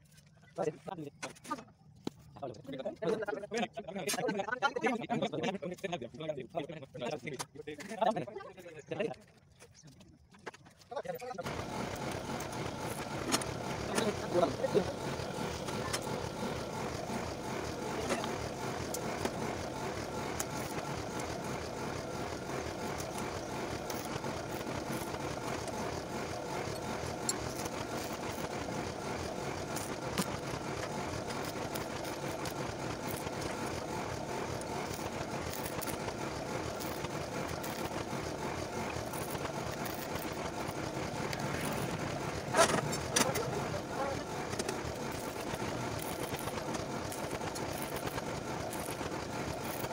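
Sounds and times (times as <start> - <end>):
steady background noise: 9.8 - 49.9
welding arc crackling: 11.4 - 49.9.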